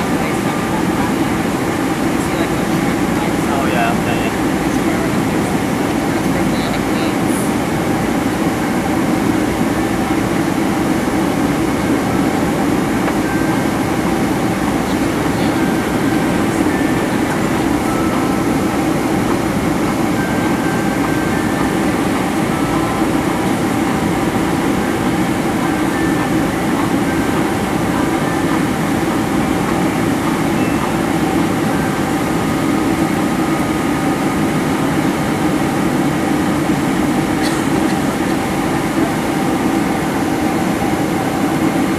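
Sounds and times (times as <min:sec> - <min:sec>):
faint steady tones: 0:00.0 - 0:41.9
jet engine and airflow roar: 0:00.0 - 0:41.9.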